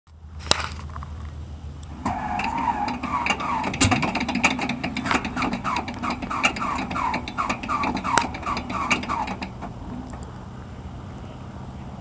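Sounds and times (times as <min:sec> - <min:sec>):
sharp clicks: 0:01.8 - 0:10.4
engine starter whine: 0:01.9 - 0:10.3.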